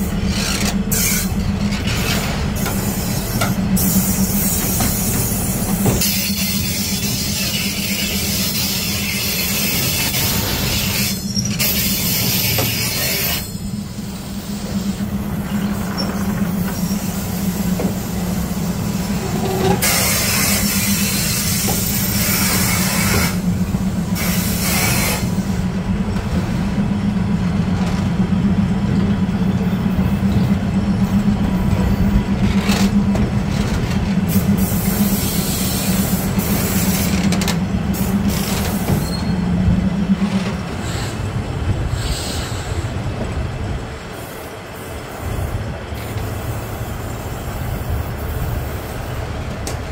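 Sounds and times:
train wheels rolling on rails: 0.0s - 49.9s
wheels squeaking on rail: 0.0s - 49.9s
hiss: 2.6s - 15.0s, 16.6s - 23.5s, 24.1s - 25.6s, 34.3s - 37.1s, 41.9s - 43.0s, 44.1s - 49.1s.

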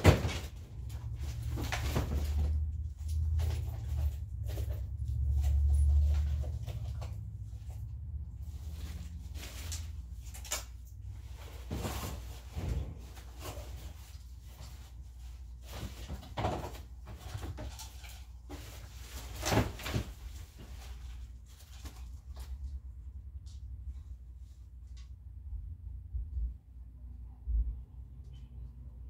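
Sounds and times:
items knocking and clunking: 0.0s - 7.8s, 8.7s - 22.5s.

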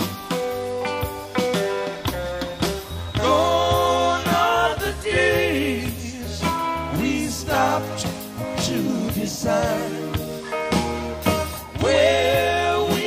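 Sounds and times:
steady bass line: 0.0s - 13.0s
person singing: 3.2s - 10.6s, 11.7s - 13.0s.

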